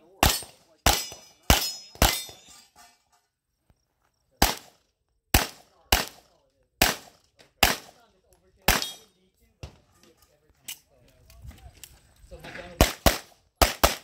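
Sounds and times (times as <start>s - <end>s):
steel targets clanging: 0.1s - 3.4s, 8.7s - 9.1s
pistol shots: 0.2s - 2.5s, 4.4s - 8.0s, 8.6s - 9.1s, 12.8s - 14.0s.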